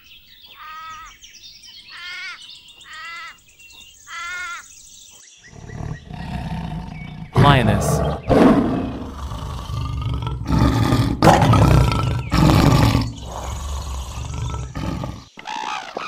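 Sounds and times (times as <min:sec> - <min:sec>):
lioness roaring: 0:05.5 - 0:15.3.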